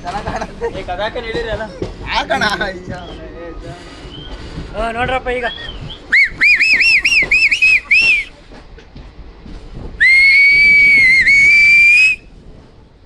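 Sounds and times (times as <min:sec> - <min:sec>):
person whistling: 0:05.6 - 0:08.3, 0:10.0 - 0:12.2.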